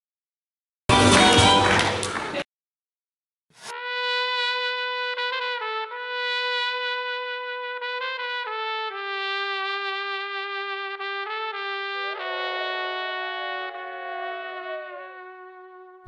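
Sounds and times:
trumpet playing slow melody: 3.7s - 16.0s.

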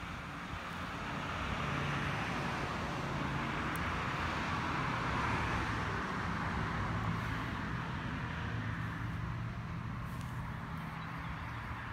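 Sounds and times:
distant vehicle traffic: 0.0s - 11.9s.

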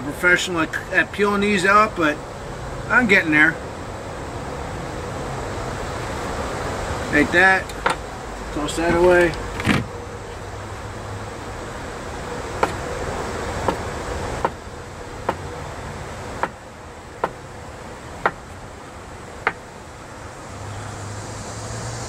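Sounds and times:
steady background hiss: 0.0s - 22.0s.

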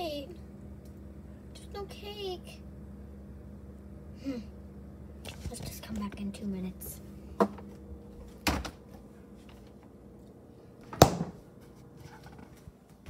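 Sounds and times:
faint steady hum: 0.0s - 13.0s
light knocks on refrigerator: 10.9s - 11.4s.

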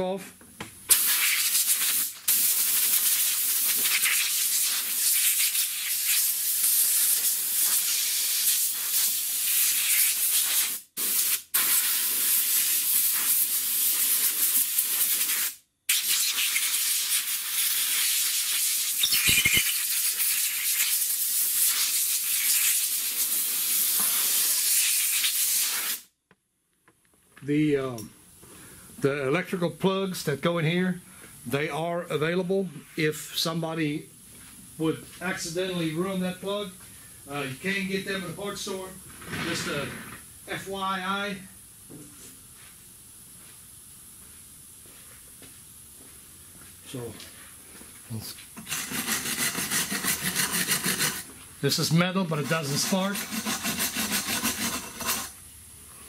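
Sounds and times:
compressed air blow gun hissing: 0.9s - 19.0s, 19.6s - 26.1s.

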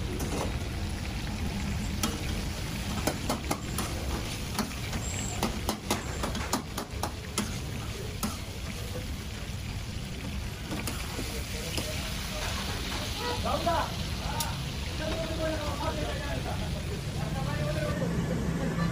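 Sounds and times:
chicken sizzling in oil: 0.0s - 18.8s
utensils clacking against woks: 1.5s - 8.9s, 10.2s - 16.0s.

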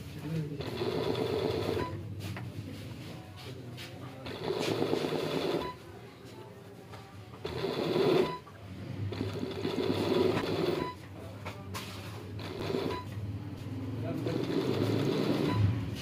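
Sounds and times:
sewing machine stitching: 0.6s - 1.9s, 4.2s - 5.8s, 7.4s - 8.4s, 9.1s - 11.0s, 12.4s - 13.1s, 14.3s - 15.6s.

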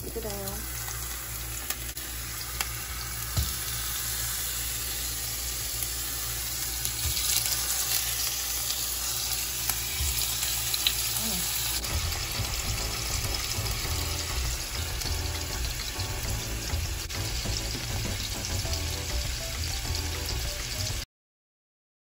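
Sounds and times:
sausage sizzling in oil: 0.0s - 21.1s
light knocks on pan: 3.3s - 3.6s.

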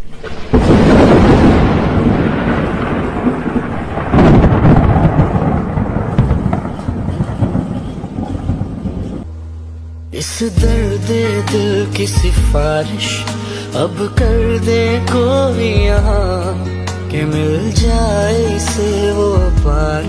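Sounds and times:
thunder rumbling: 0.0s - 9.3s.

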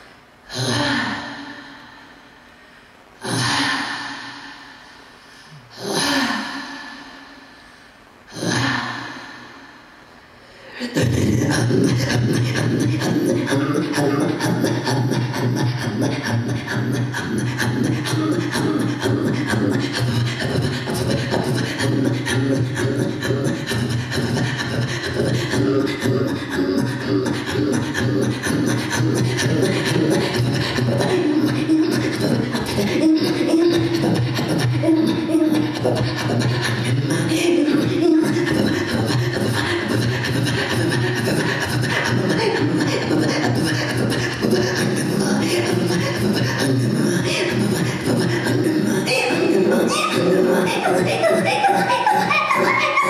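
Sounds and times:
throat singing: 10.7s - 53.0s.

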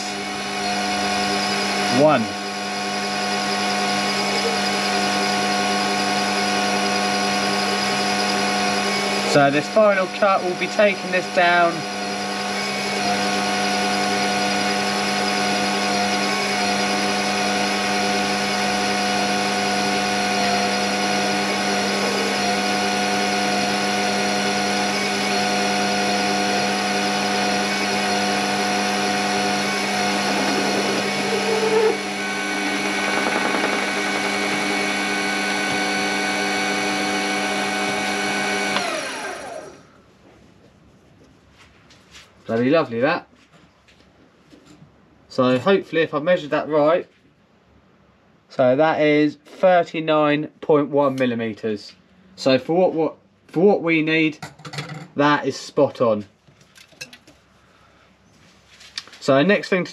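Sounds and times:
lathe whine: 0.0s - 39.9s
lathe spinning down: 13.2s - 39.9s.

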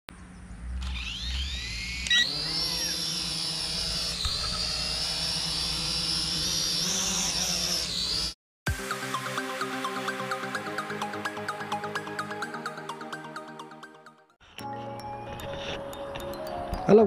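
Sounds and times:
drone propellers whining: 0.6s - 14.1s.

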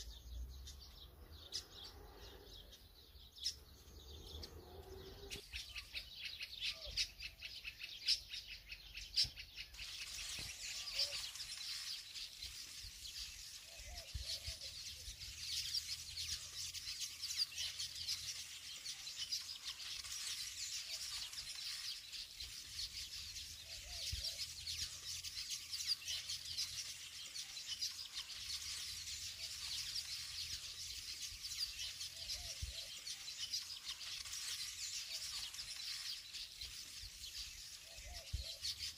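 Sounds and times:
small birds twittering: 0.0s - 38.9s.

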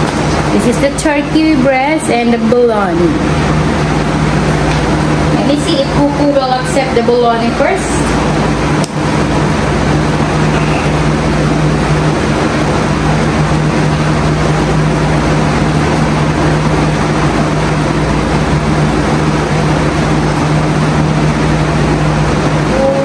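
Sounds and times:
machine whirring and humming: 0.0s - 23.0s.

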